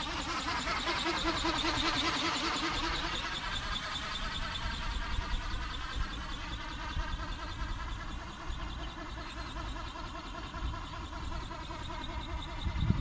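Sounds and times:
model aircraft motor whining: 0:00.0 - 0:13.0
low wind rumble: 0:12.1 - 0:13.0.

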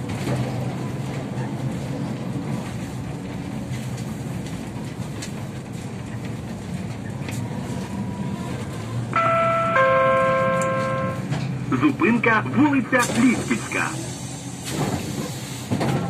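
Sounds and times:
trolleybus interior rumble: 0:00.0 - 0:16.0
electronic chime tones: 0:09.2 - 0:11.2.

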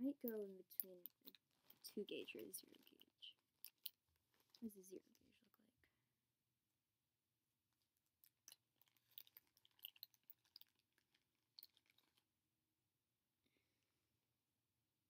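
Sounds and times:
small pieces clicking and crackling: 0:00.2 - 0:04.8, 0:08.1 - 0:12.3.

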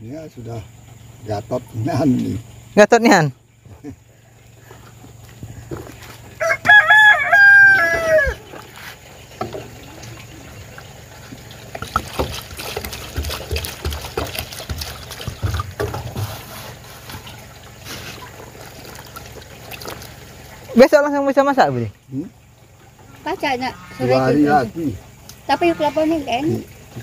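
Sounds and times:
rooster crowing: 0:06.4 - 0:08.5
water pouring into a bucket: 0:06.8 - 0:27.0.

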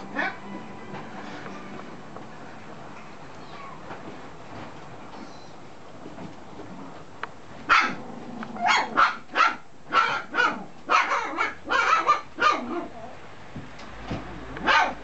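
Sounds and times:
puppy yapping: 0:07.7 - 0:08.0, 0:08.6 - 0:13.1, 0:14.6 - 0:15.0.

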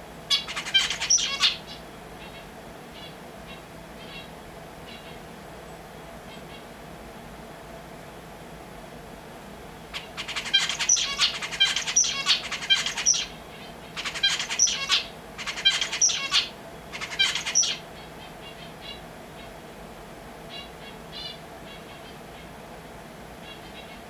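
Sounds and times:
finch singing: 0:00.3 - 0:06.7, 0:10.0 - 0:19.6, 0:20.5 - 0:22.6, 0:23.4 - 0:24.0.

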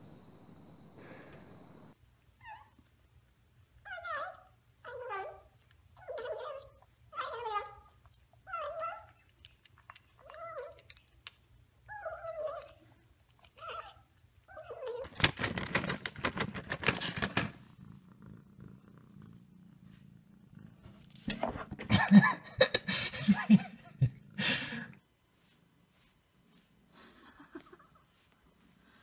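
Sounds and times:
loud rustling and clattering: 0:15.1 - 0:17.6.

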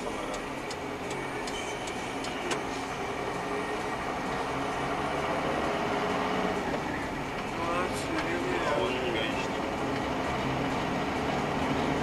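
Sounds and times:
car road and engine noise: 0:00.0 - 0:12.0.

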